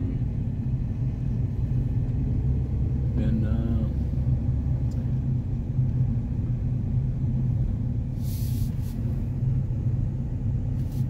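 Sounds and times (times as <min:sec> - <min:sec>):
car engine and tyres rumbling: 0:00.0 - 0:11.0
brief hiss: 0:08.2 - 0:09.2.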